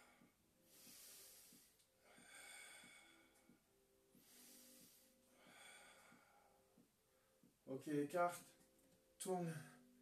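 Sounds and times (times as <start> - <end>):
person breathing slowly: 0.0 - 7.5.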